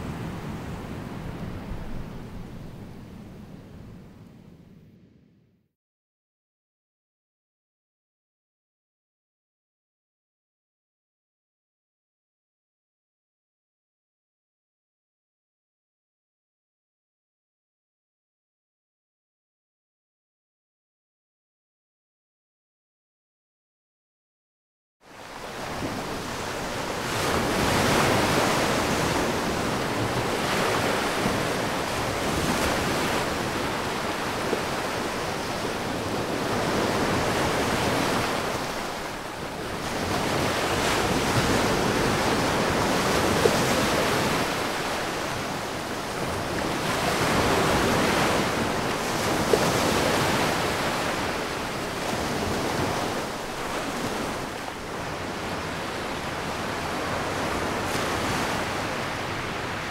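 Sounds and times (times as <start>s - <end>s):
sea surf washing ashore: 25.1s - 59.9s.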